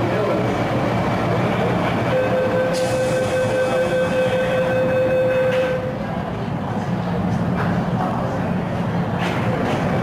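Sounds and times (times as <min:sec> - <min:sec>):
train and station hum: 0:00.0 - 0:10.0
electronic warning tone: 0:02.1 - 0:05.8.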